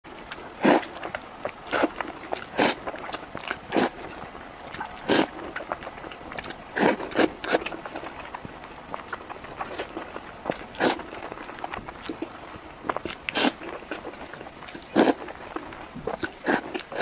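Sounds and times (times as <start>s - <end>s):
person chewing: 0.1s - 17.0s
mouth smacking: 0.2s - 17.0s
person slurping food: 0.6s - 1.1s, 1.7s - 3.0s, 3.7s - 4.0s, 5.0s - 5.8s, 6.8s - 8.0s, 10.7s - 11.2s, 13.3s - 14.1s, 14.8s - 15.2s, 16.1s - 17.0s.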